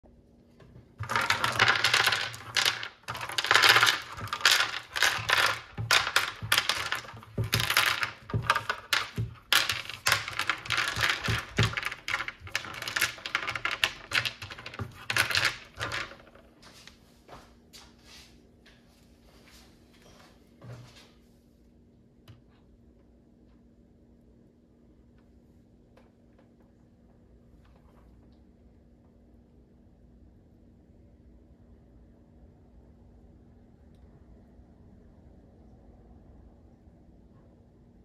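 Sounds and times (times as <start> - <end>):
pebbles clattering together: 1.0 - 16.4.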